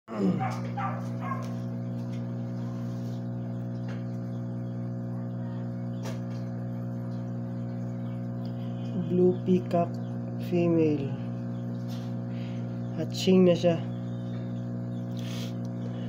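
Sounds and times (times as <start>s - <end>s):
low droning hum: 0.1s - 16.0s.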